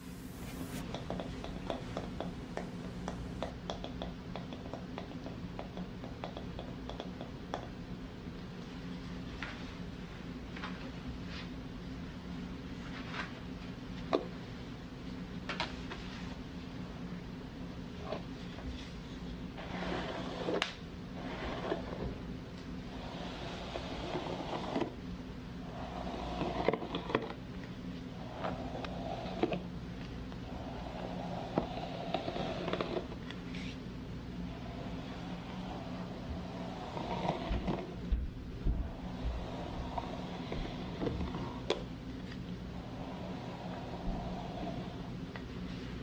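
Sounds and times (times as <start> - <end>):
hairbrush swishing through hair: 0.0 - 1.0
low hum: 0.0 - 3.5.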